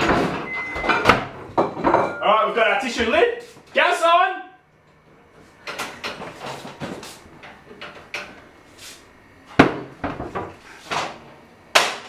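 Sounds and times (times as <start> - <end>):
gas stove knobs clicking and knocking: 5.6 - 6.4, 7.4 - 8.4.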